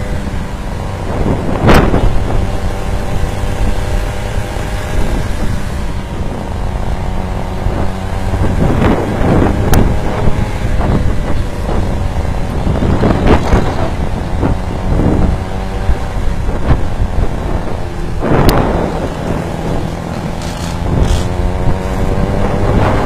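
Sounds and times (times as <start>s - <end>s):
small gasoline engine running: 0.0s - 23.0s
wind rushing over microphone: 0.0s - 23.0s.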